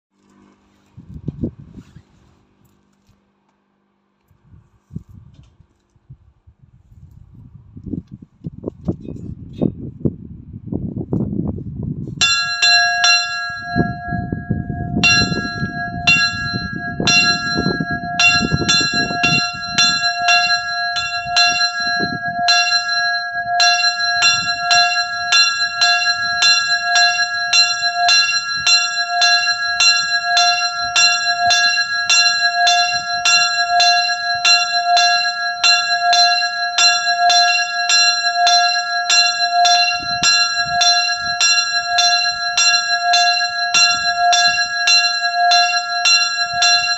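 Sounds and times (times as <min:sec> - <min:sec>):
small church bell ringing: 0:12.2 - 0:46.9.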